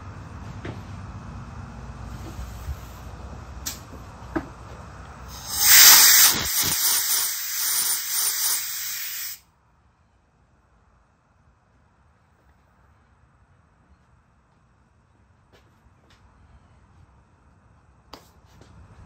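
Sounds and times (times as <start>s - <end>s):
compressed air blasting: 5.3s - 9.4s.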